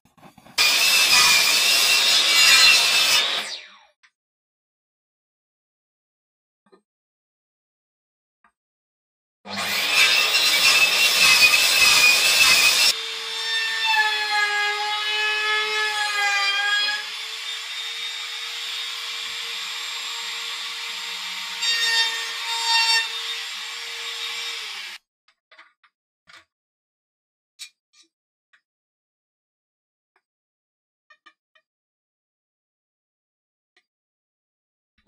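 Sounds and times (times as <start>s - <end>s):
miter saw cutting wood: 0.3s - 3.7s, 9.5s - 25.0s.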